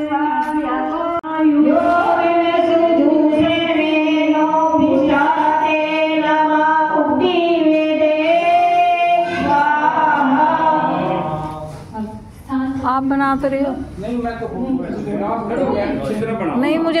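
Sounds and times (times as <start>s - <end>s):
woman singing into microphone: 0.0s - 12.8s.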